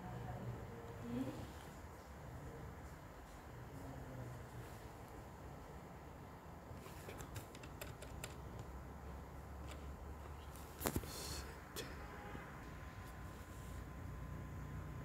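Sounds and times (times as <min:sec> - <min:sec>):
keyboard and mouse clicks: 0:07.0 - 0:08.7.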